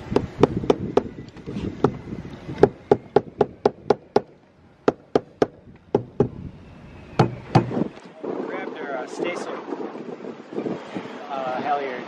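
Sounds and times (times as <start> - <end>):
mallet tapping metal plate: 4.9 - 6.3.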